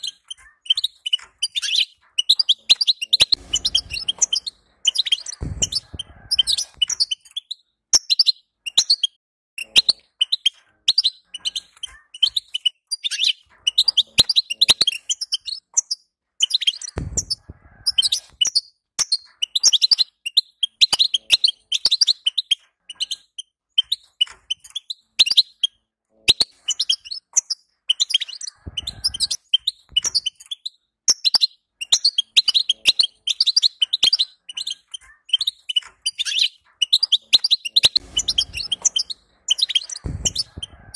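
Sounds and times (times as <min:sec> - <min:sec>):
finch twittering: 0:00.0 - 0:40.9.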